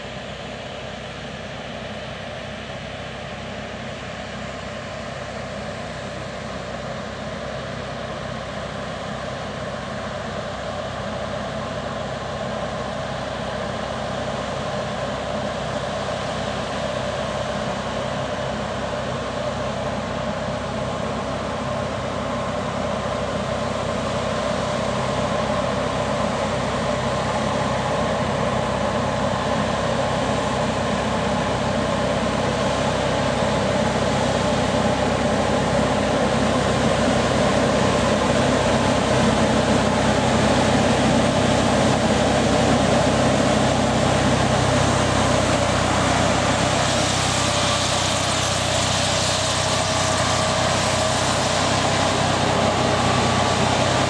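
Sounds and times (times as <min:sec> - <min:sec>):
tractor engine: 0:00.0 - 0:54.0
sprayer air fan rushing: 0:24.2 - 0:54.0.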